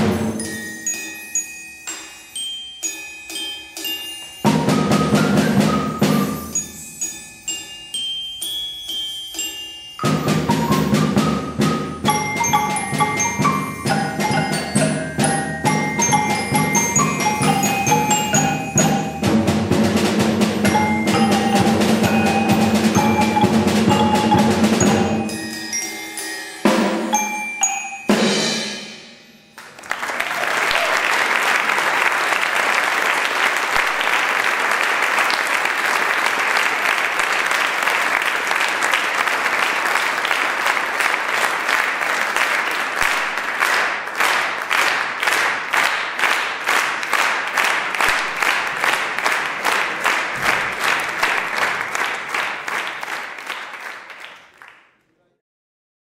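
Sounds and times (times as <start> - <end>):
rhythmic clapping in unison: 0.0 - 28.2, 29.5 - 55.0
mallet percussion: 0.0 - 29.6
audience applause: 29.6 - 54.9.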